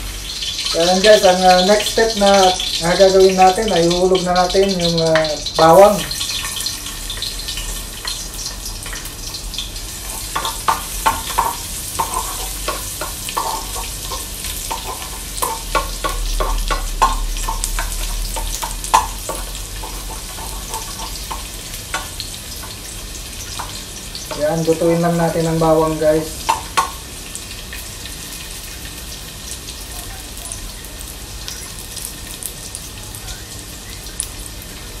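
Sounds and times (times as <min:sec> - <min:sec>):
garlic sizzling in hot oil: 0:00.0 - 0:35.0
spoon scraping and knocking pot: 0:10.1 - 0:22.8.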